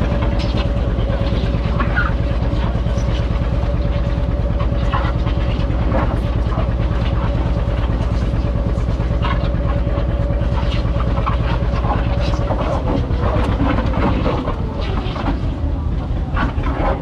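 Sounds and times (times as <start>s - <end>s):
tractor engine running: 0.0s - 17.0s.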